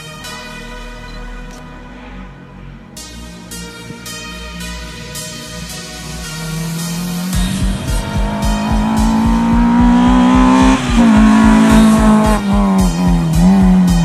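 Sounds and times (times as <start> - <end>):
music with a steady beat: 2.9 - 14.0
rally car engine revving: 5.0 - 14.0.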